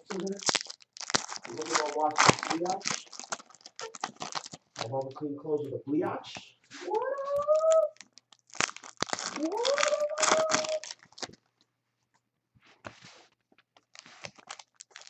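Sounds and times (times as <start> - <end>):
foil wrappers crinkling and tearing: 0.0 - 5.1, 7.6 - 11.5, 13.8 - 15.0
cat meowing: 6.8 - 8.0, 9.4 - 10.8.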